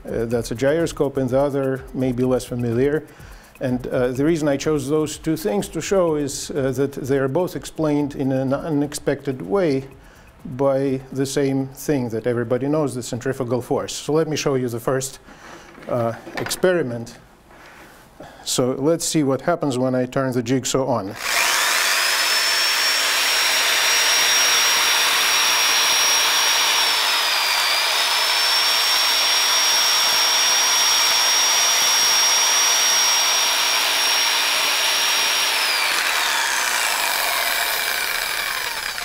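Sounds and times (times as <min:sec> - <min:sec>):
electric jigsaw motor whine: 0:21.2 - 0:39.0.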